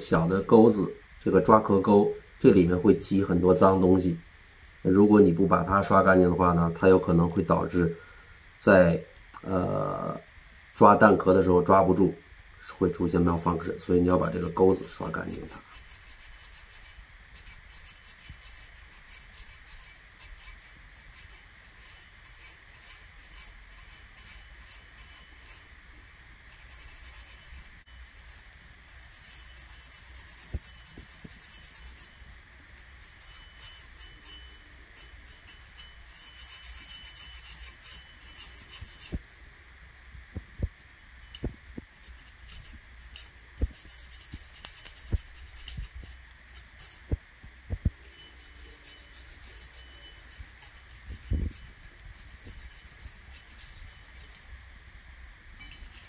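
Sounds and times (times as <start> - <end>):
brush scrubbing metal: 12.6 - 39.2, 41.2 - 47.2, 48.0 - 54.5, 55.6 - 56.0.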